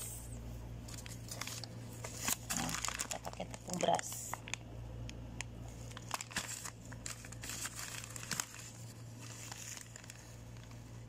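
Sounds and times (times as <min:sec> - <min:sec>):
plastic packaging crinkling: 0:00.8 - 0:04.7, 0:05.4 - 0:11.0.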